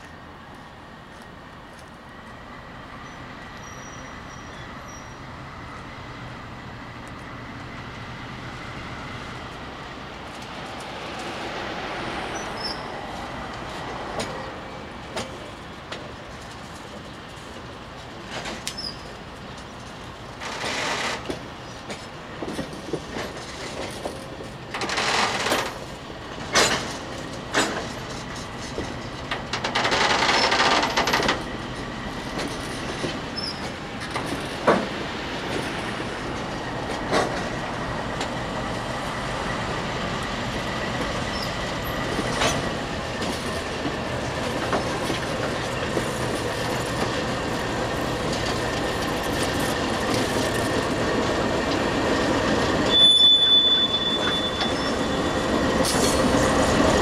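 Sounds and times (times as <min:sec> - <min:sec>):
train wheels rumbling on rail: 0:00.0 - 0:57.0
high wheel squeal: 0:03.0 - 0:05.3, 0:12.4 - 0:13.0, 0:33.3 - 0:33.7, 0:52.8 - 0:56.4.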